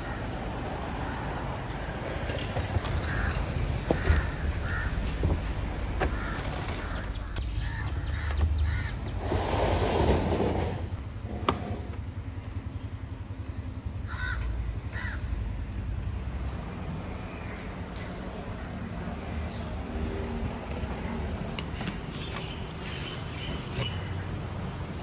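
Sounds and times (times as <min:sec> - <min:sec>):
crows cawing: 0:00.0 - 0:00.4, 0:02.8 - 0:05.2, 0:06.0 - 0:09.1, 0:14.0 - 0:15.3.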